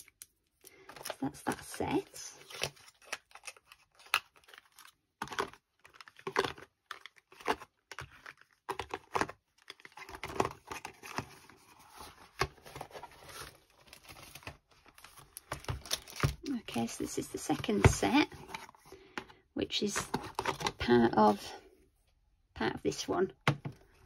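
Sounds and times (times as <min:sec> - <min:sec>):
cellophane crinkling: 0:00.6 - 0:17.8.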